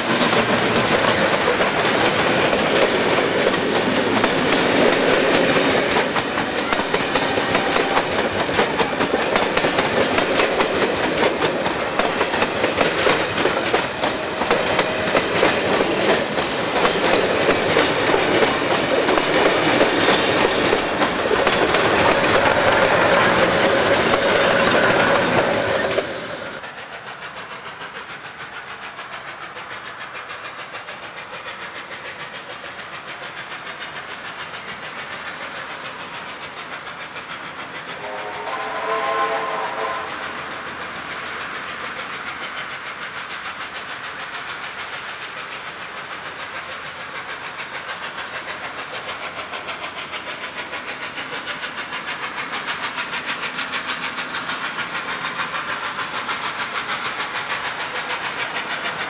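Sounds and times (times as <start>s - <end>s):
train wheels clattering over rail joints: 0.0s - 39.3s, 40.2s - 59.0s
distant steam locomotive whistle: 37.7s - 40.8s.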